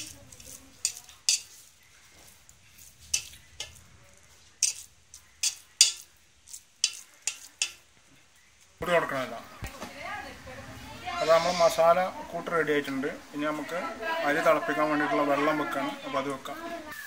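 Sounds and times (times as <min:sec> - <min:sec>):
spatula scraping metal pot: 0:00.0 - 0:01.9, 0:02.7 - 0:07.9.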